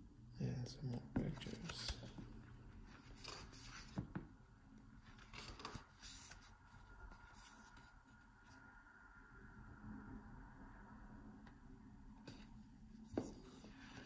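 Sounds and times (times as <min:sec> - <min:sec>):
paper pages turning: 0:01.4 - 0:04.0, 0:05.0 - 0:08.0.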